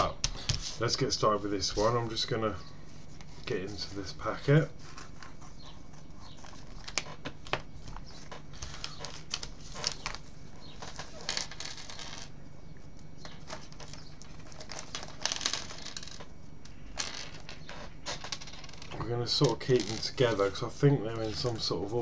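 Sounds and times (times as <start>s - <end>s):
plastic bags crinkling: 13.4s - 16.3s.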